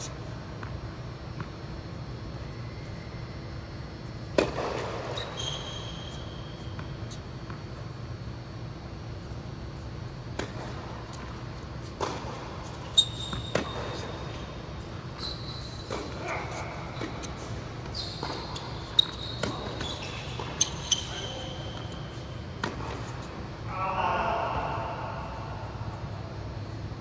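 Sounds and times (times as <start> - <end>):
racket hitting tennis ball: 4.2 - 5.2, 10.3 - 14.9, 15.6 - 23.4
ball bounces: 4.3 - 5.2, 10.3 - 11.2, 11.8 - 12.6, 13.2 - 14.2, 15.8 - 23.2
sneaker squeaks on court: 4.4 - 7.7, 12.0 - 23.3.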